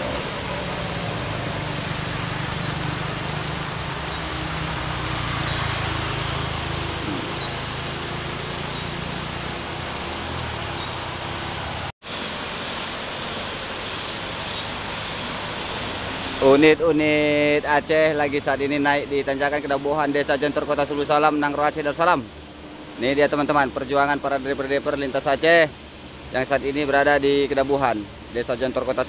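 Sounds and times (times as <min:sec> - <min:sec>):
road noise: 0:00.0 - 0:29.0
truck diesel engines under load: 0:00.0 - 0:29.0.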